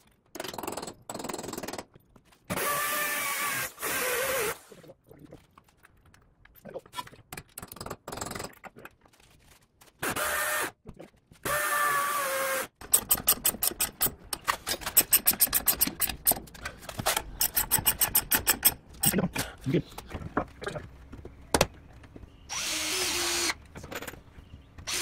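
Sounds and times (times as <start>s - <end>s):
ratchet wrench clicking: 17.4s - 18.8s
power drill running: 22.5s - 23.6s.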